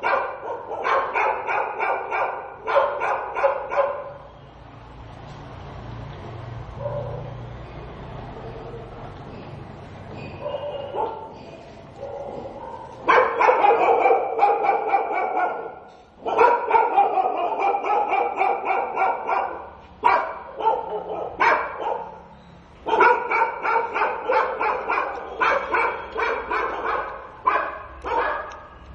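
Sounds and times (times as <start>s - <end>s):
dog barking: 0.0s - 4.3s, 6.8s - 7.3s, 10.4s - 11.4s, 12.0s - 28.8s.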